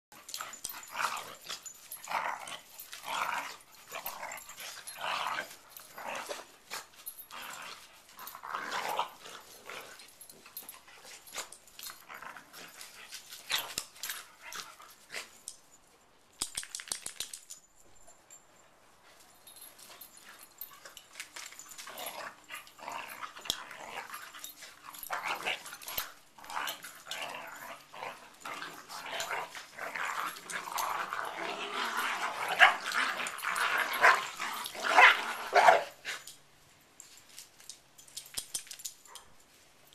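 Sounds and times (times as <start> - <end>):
dogs growling: 0.2 - 14.8, 21.3 - 36.3.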